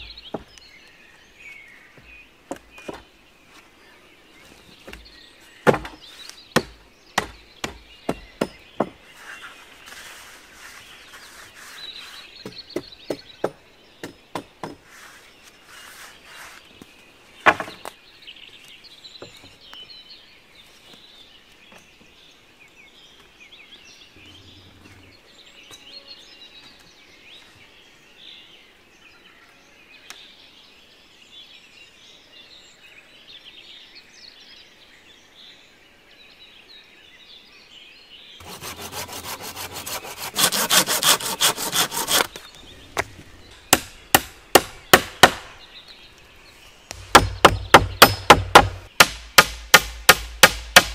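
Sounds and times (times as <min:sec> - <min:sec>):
faint birdsong: 0:00.0 - 0:50.9
hand saw cutting wood: 0:38.4 - 0:42.5
hatchet blows on wood: 0:46.9 - 0:50.9.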